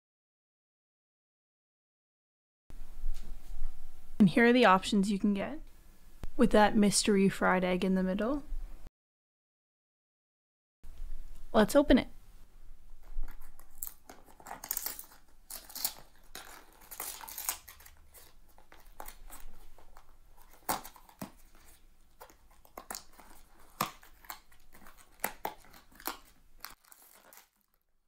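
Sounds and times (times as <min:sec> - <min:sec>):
foil pouch rustling: 0:12.9 - 0:27.9
cardboard scraping and rustling: 0:13.0 - 0:27.5.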